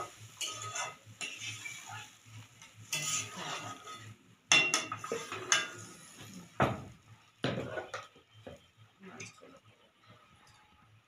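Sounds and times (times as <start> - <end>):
metal ladle clinking against pan: 4.5 - 5.8.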